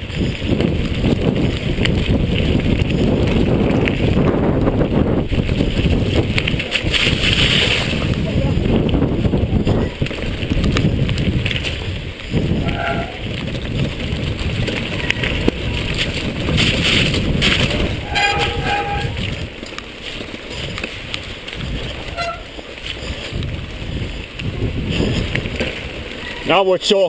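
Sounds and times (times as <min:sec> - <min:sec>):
bike rattling on gravel trail: 0:00.0 - 0:27.0
wind buffeting camera: 0:00.0 - 0:27.0
bike brakes squealing: 0:12.6 - 0:13.2, 0:18.0 - 0:19.3, 0:22.0 - 0:22.6, 0:26.1 - 0:26.6.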